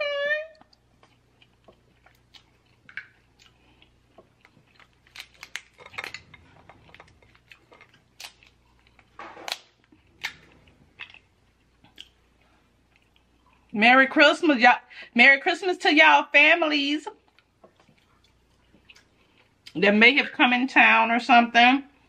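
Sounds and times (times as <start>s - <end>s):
soft eating sounds: 0.1s - 13.9s, 17.1s - 20.0s
crab shells cracking and snapping: 0.7s - 12.2s.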